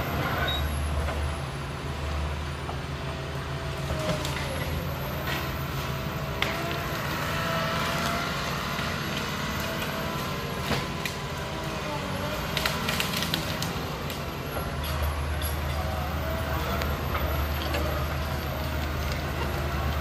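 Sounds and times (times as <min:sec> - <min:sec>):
diesel engine running: 0:00.0 - 0:20.0
wood and brush cracking: 0:06.4 - 0:20.0.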